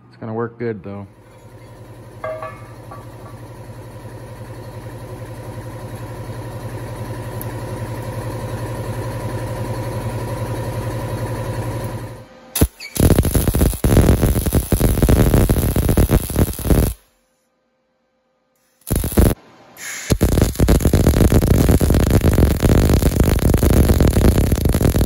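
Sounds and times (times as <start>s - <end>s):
pulsing mechanical hum: 1.1s - 17.0s, 18.8s - 25.0s
click: 7.4s - 7.6s
welding arc crackling hiss: 12.6s - 17.1s, 18.6s - 25.0s.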